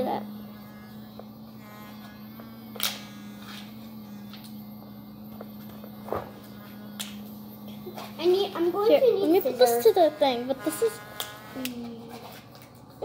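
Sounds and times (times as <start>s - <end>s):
electric toothbrush buzzing: 0.0s - 13.0s.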